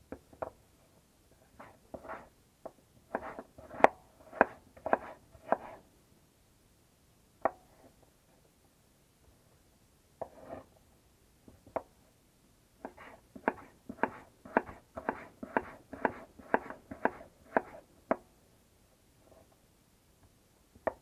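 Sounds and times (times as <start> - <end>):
knife chopping on wooden board: 12.9 - 17.8.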